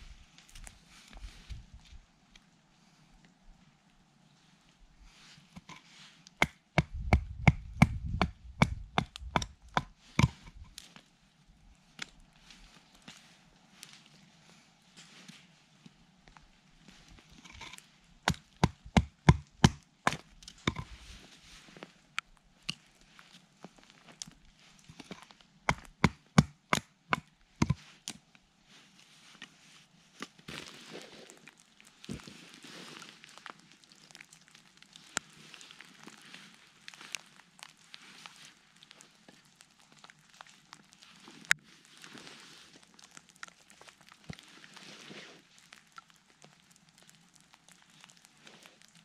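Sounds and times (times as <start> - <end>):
soft rustling: 0.0 - 6.3, 10.0 - 18.1, 20.3 - 25.5, 27.6 - 49.0.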